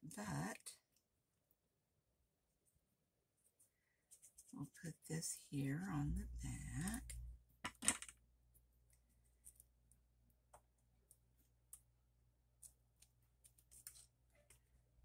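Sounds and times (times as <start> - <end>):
faint low hum: 4.2 - 7.6.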